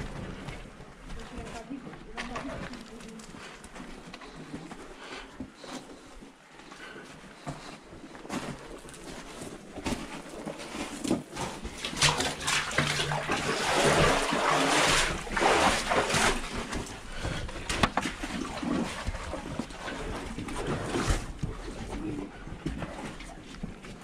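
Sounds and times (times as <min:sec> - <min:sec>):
footsteps splashing through water: 0:10.4 - 0:22.0.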